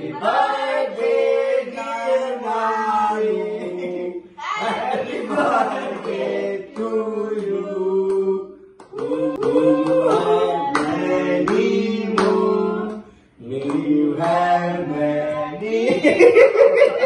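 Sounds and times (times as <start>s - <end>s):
family singing together: 0.0s - 17.0s
hand clapping: 6.8s - 14.4s.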